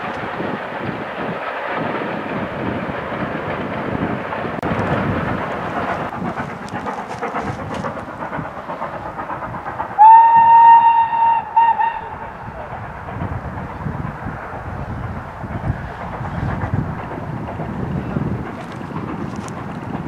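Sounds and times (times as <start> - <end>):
distant steam locomotive exhaust: 0.0 - 20.0
steam whistle blast: 10.0 - 12.2.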